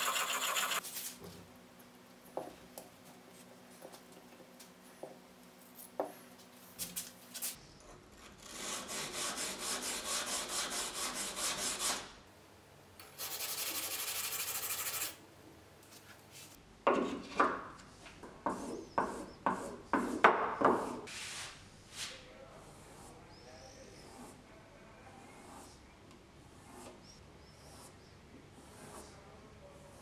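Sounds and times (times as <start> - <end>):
blade scraping on sharpening stone: 0.0 - 0.8.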